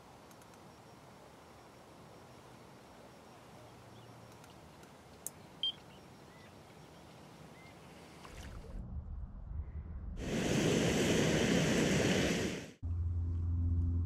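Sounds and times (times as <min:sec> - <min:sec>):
click: 0:00.3 - 0:00.6
bite alarm bleep: 0:05.6 - 0:05.8
faint outdoor hush: 0:10.2 - 0:12.8.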